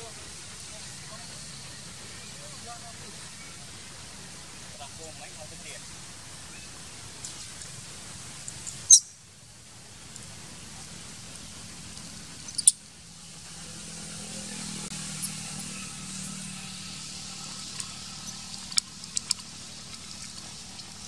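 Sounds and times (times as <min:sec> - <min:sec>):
low steady hum: 0:05.6 - 0:21.0.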